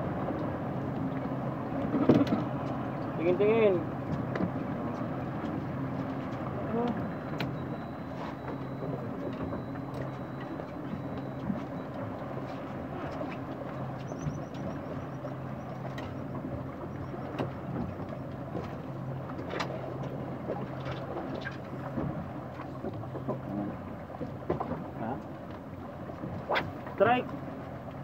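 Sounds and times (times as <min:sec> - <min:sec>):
wind and water hiss: 0:00.0 - 0:06.9
boat engine humming: 0:00.0 - 0:28.0.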